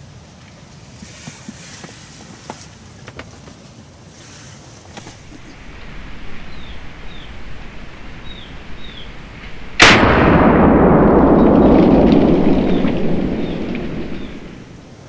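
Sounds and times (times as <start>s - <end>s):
rifle shot with rolling echo: 5.1s - 15.0s.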